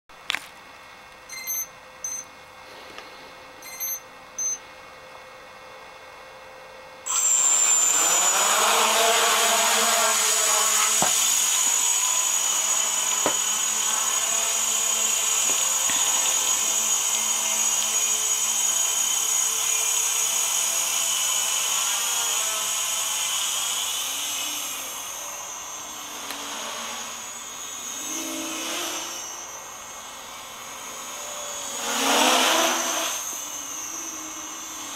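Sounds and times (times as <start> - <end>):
short beeps: 1.3 - 2.3, 3.6 - 4.6
quadcopter motors whining: 7.0 - 34.9.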